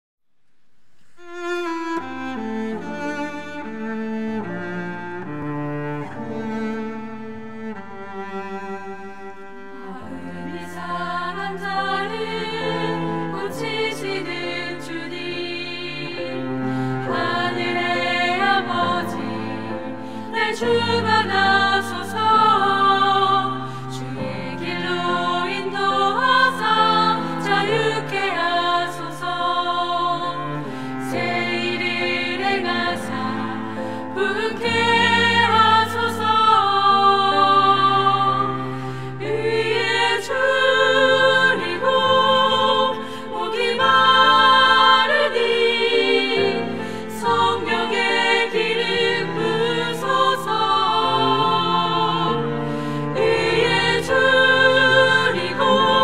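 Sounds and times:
cello sustained low notes: 1.2 - 56.0
women singing in harmony: 9.8 - 56.0.

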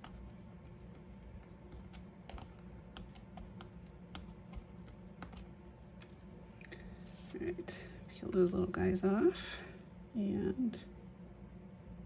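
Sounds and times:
fingers handling paper clicks: 0.0 - 6.1.

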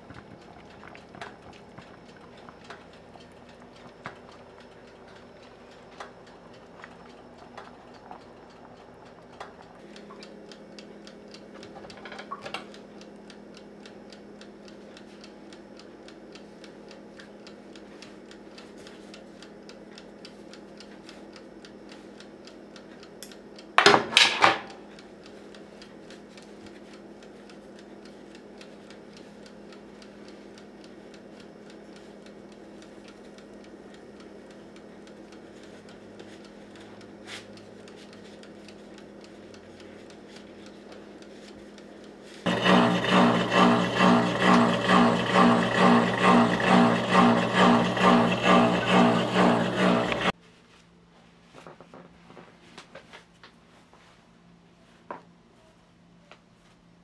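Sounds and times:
faint ticking: 0.0 - 23.8, 24.8 - 50.4
low hum: 42.5 - 50.4.

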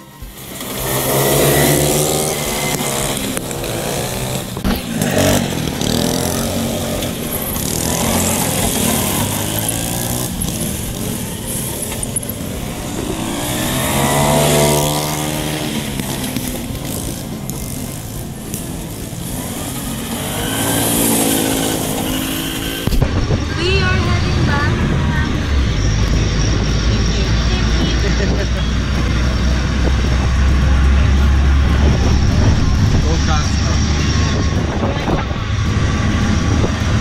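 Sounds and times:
go-kart engine running: 0.0 - 37.0.

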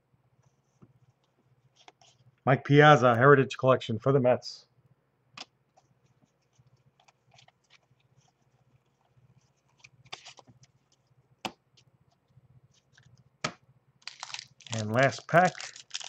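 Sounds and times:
cards rustling and clicking: 6.4 - 11.6, 12.8 - 16.0.

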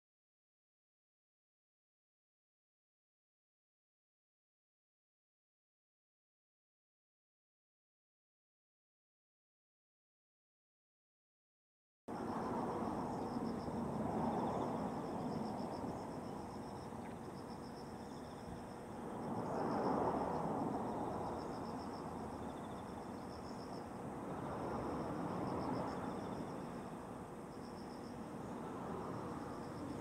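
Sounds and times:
insects trilling: 12.1 - 30.0.

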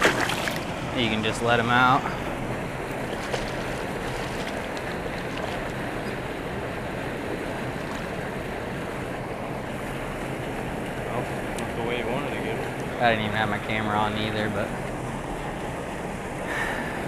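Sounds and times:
water pouring from a spillway: 0.0 - 1.3.

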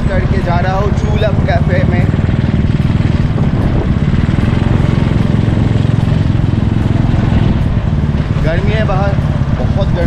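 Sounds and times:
motorcycle engine running: 0.0 - 10.0.

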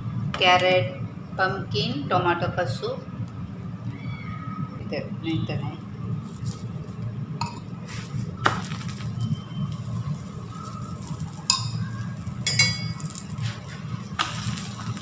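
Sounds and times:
flatbread frying in oil: 6.0 - 15.0
metal utensils clinking: 10.2 - 15.0.

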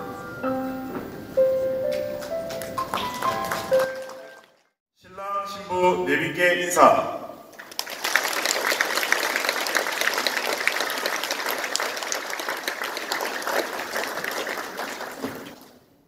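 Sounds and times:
audience applauding: 2.2 - 4.7, 7.5 - 15.9.

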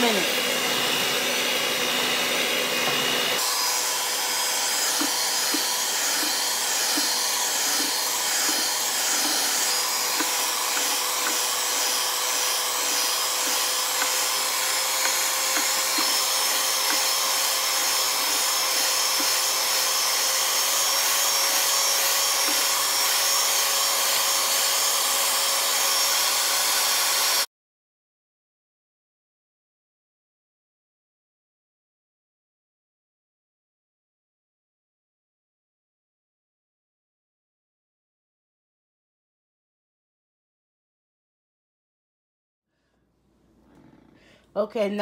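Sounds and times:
electric mixer whipping cream: 0.0 - 27.5.

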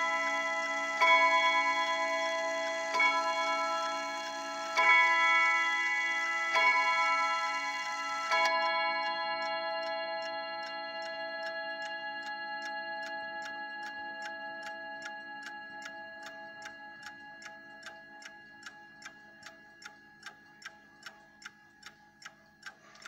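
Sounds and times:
clock chime rods ringing: 0.0 - 23.0
clock ticking quickly: 0.0 - 23.0.

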